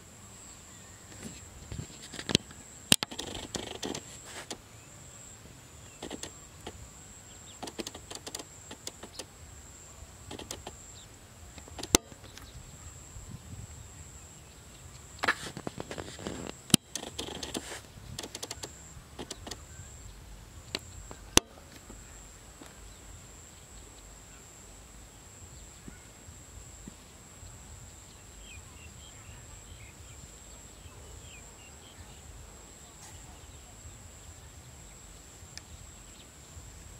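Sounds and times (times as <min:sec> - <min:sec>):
faint bird chirps: 0:00.2 - 0:36.7
sharp clicks: 0:02.1 - 0:04.6, 0:05.9 - 0:06.8, 0:07.6 - 0:09.3, 0:10.3 - 0:10.8, 0:11.6 - 0:12.5, 0:15.0 - 0:19.7
soft rustles and knocks: 0:15.2 - 0:18.4.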